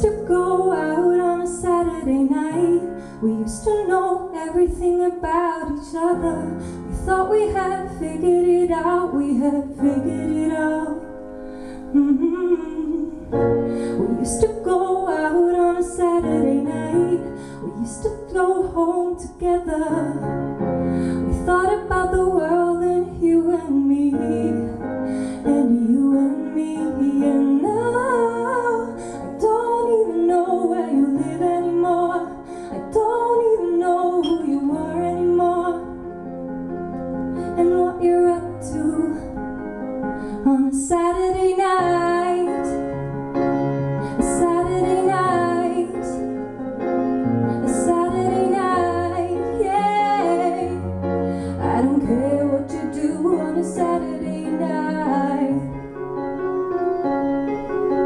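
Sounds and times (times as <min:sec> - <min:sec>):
woman singing: 0:00.0 - 0:20.4, 0:21.2 - 0:36.0, 0:37.4 - 0:39.6, 0:40.2 - 0:42.9, 0:44.0 - 0:46.4, 0:47.5 - 0:55.8
electric keyboard chords: 0:41.3 - 0:58.0.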